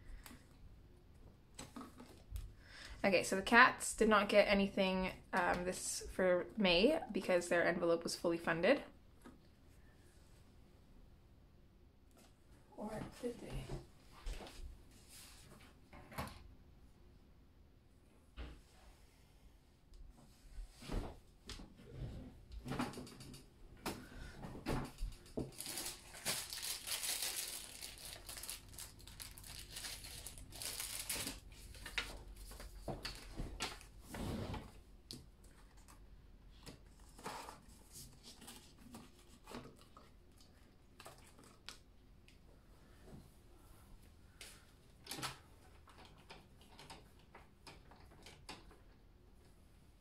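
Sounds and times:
paper and plastic rustling: 25.0 - 33.9, 36.6 - 41.8.

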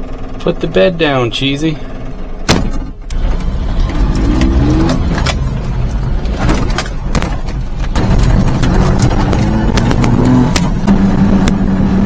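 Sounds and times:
small truck engine running: 0.0 - 12.0
sharp clicks and rattles: 2.7 - 11.7.

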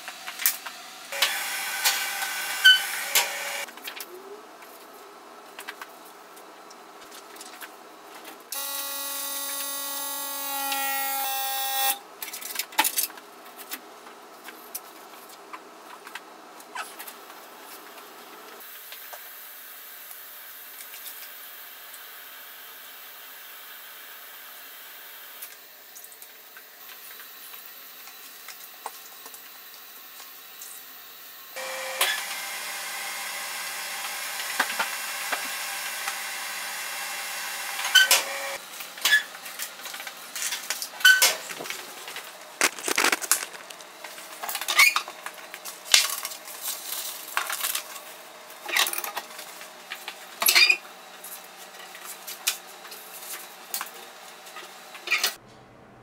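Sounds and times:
paper being handled: 41.4 - 44.0.

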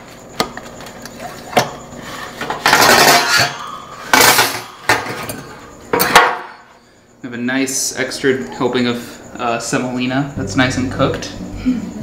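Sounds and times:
metal spatula scraping baking pan: 2.0 - 3.6.

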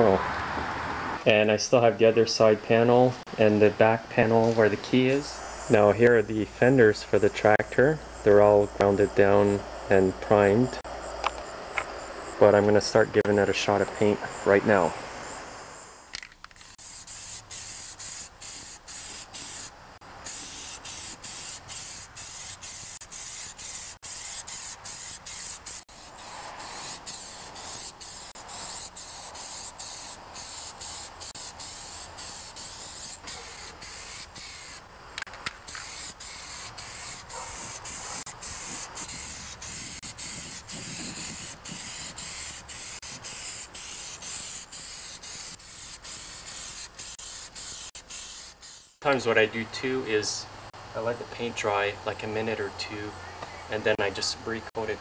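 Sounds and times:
spray paint hissing: 15.8 - 49.2.

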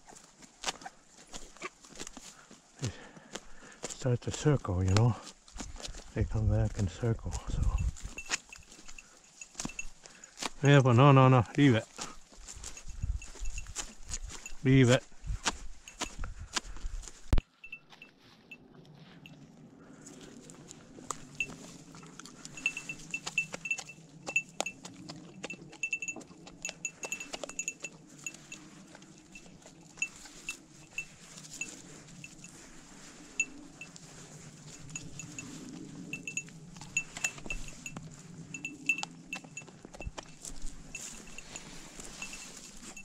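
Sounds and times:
light metallic tinkling: 6.7 - 11.8, 12.5 - 15.0, 15.8 - 16.2, 17.4 - 19.4, 21.1 - 43.0.

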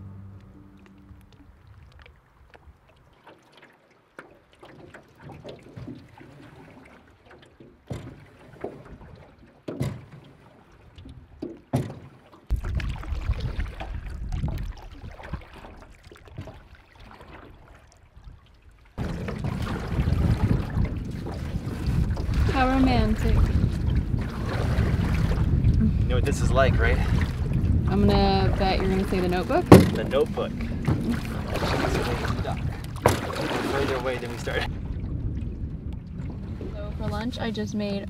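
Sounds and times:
water splashing from paddling: 0.0 - 38.0
sharp knocks on metal boat: 7.8 - 8.8, 9.6 - 10.3, 11.4 - 12.6, 29.4 - 31.3, 32.9 - 33.6
wind buffeting microphone: 12.5 - 16.7, 18.2 - 38.0.

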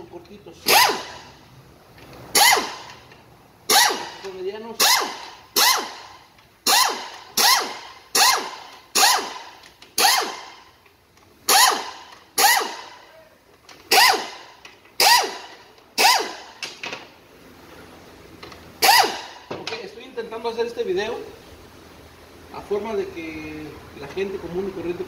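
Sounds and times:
pneumatic air ratchet bursts: 0.6 - 1.4, 2.3 - 10.8, 11.4 - 13.0, 13.7 - 16.8, 18.8 - 19.5.

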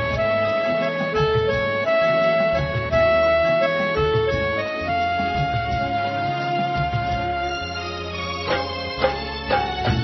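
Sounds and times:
instrumental backing track: 0.0 - 10.0.

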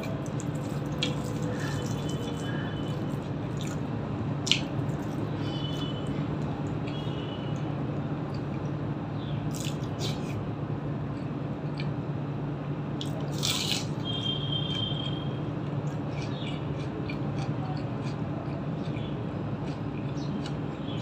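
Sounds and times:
wet chewing: 0.0 - 6.0, 9.5 - 10.4, 13.0 - 21.0
crisp bite into fried food: 13.3 - 13.9.

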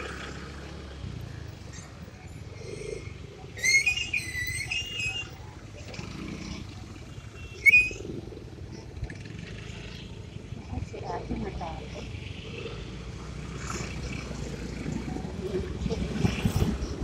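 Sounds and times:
motorcycle engine and road rumble: 0.0 - 17.0
high wavering squeal: 3.5 - 5.6, 7.6 - 8.2
short high squeak: 3.6 - 5.5, 7.5 - 8.0.

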